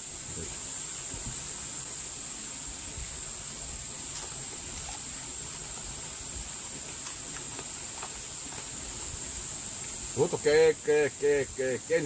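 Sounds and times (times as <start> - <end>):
insects droning: 0.0 - 12.0
faint crunching clicks of chewing: 4.1 - 6.0, 6.6 - 8.9.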